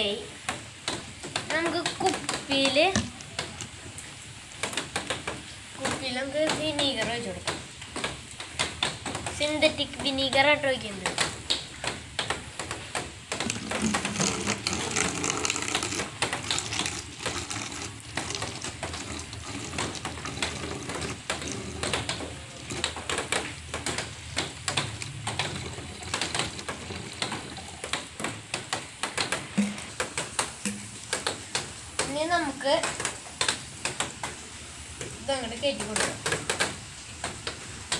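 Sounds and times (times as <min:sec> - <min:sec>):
plastic bottles clicking: 0:00.9 - 0:03.8, 0:11.1 - 0:32.1
liquid pouring into bottle: 0:01.1 - 0:05.3, 0:12.7 - 0:31.6.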